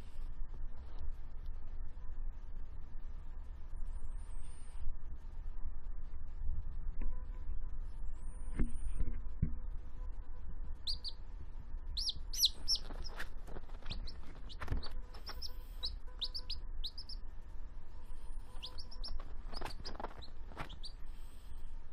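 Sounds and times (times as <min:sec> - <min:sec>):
chick peeping: 0:10.8 - 0:11.2, 0:11.9 - 0:17.3, 0:18.2 - 0:21.0.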